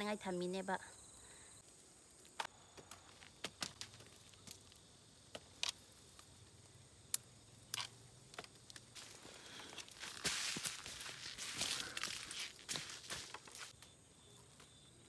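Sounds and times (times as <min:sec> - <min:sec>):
soft snaps of picking peppers: 0:07.1 - 0:09.0.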